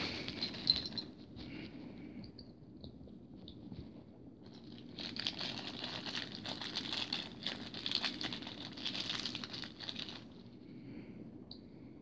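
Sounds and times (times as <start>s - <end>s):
packaging crinkling with clicks: 4.4s - 10.4s.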